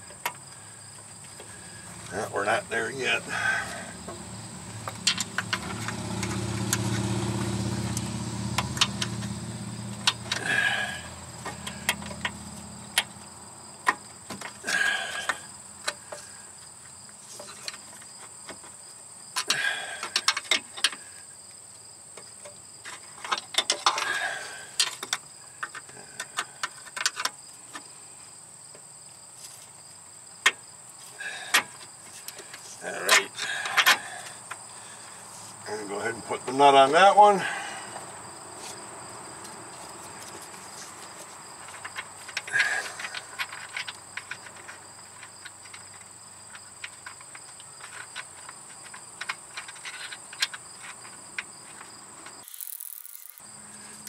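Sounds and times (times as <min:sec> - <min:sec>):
crickets chirring: 0:00.0 - 0:54.0
low engine hum: 0:03.2 - 0:13.6
metallic clicks of hand tools: 0:52.4 - 0:53.4.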